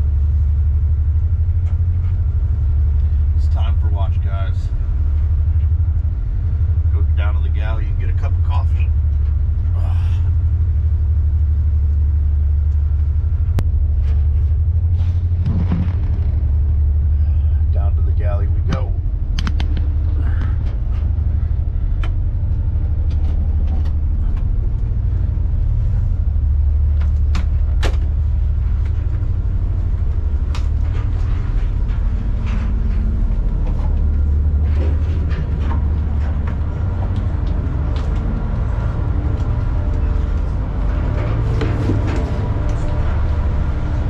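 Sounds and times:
boat diesel engines droning: 0:00.0 - 0:44.0
sharp clicks and knocks: 0:18.6 - 0:20.8.

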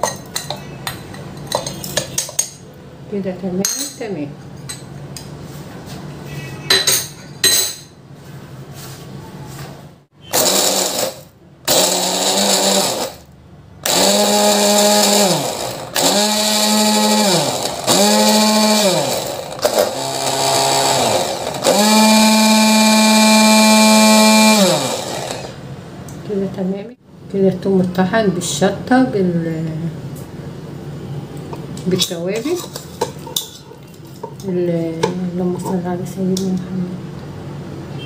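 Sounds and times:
electric blender motor whine: 0:10.3 - 0:25.6.

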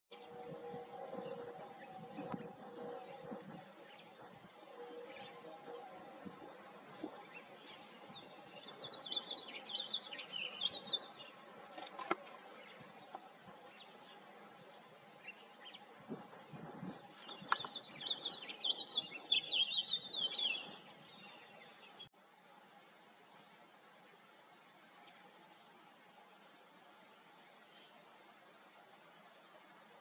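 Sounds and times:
songbird singing chirpy notes: 0:00.1 - 0:22.9.

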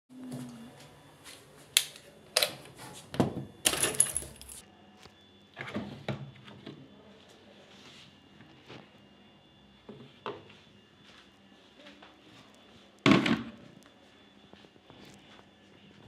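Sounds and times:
hard objects clinking on metal: 0:03.7 - 0:04.6.

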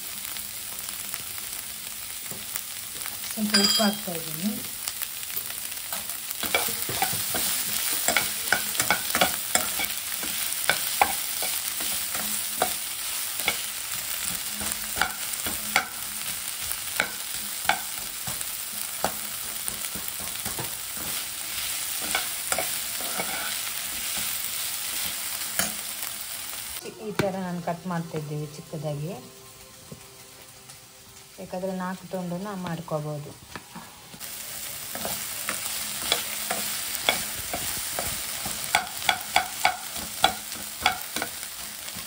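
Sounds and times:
onions sizzling in oil: 0:00.0 - 0:42.0
metal spoon scraping pan: 0:20.5 - 0:24.3.

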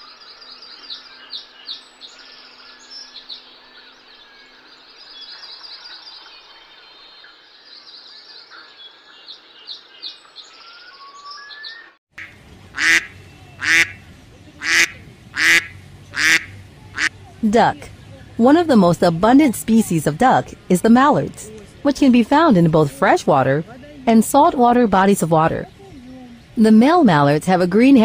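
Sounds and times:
small birds chirping: 0:00.0 - 0:18.4
duck quacking loudly: 0:12.2 - 0:14.0, 0:14.6 - 0:17.1.

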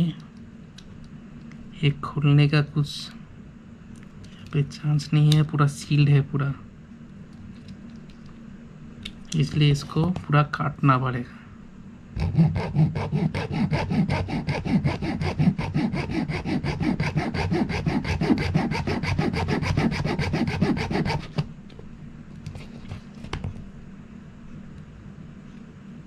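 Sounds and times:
hacksaw sawing plastic casing: 0:12.2 - 0:21.5.

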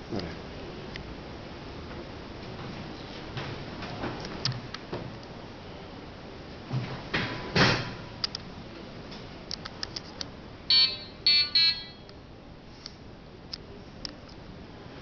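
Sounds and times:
buzzy electronic beeps: 0:10.7 - 0:12.1.

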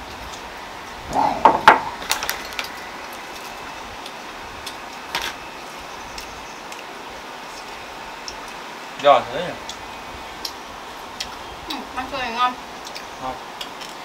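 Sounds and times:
steady background hiss: 0:00.0 - 0:14.0
tableware clinking: 0:01.2 - 0:02.0.

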